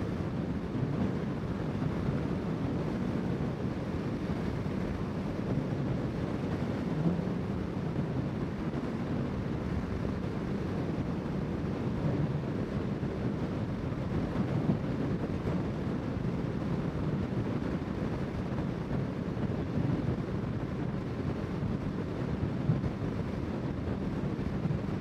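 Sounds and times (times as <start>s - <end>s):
wind noise on microphone: 0.0s - 25.0s.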